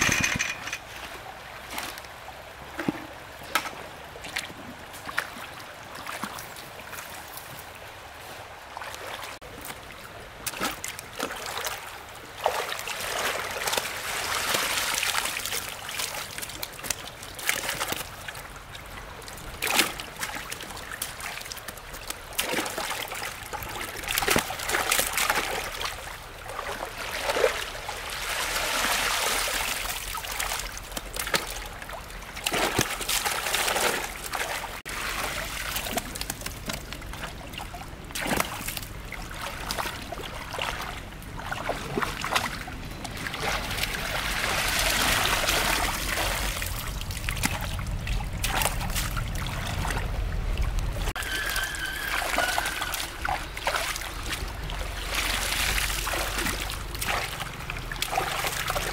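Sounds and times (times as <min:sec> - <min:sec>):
water splashing and trickling: 0:00.0 - 0:58.9
low steady rumble: 0:34.9 - 0:51.2.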